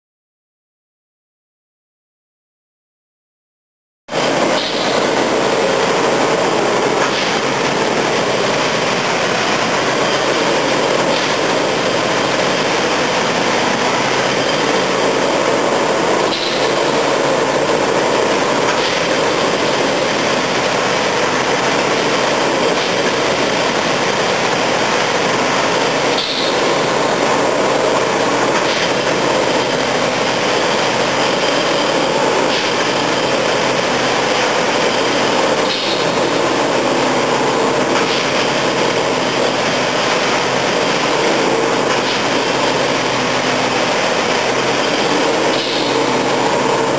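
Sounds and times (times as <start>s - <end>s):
machine engine running steadily: 4.1s - 46.9s.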